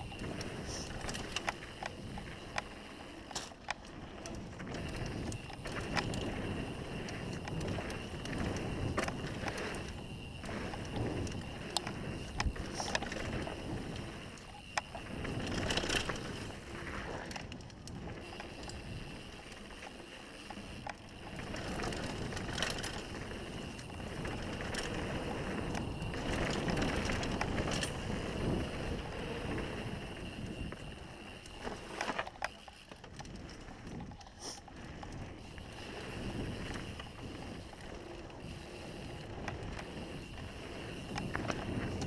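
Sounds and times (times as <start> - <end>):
bike rattling over bumps: 0.0 - 42.0
tyres rumbling over dirt: 3.8 - 34.1.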